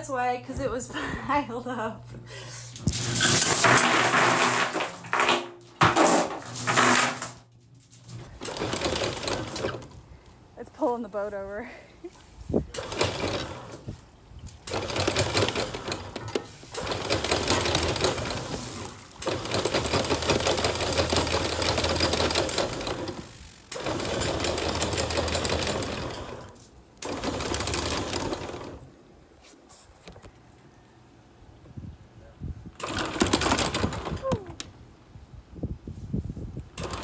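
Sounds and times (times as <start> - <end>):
anchor chain clattering: 2.8 - 9.9, 12.7 - 13.9, 14.5 - 28.8, 32.8 - 34.2
electric windlass running: 8.0 - 10.3, 12.4 - 29.0, 36.6 - 37.0.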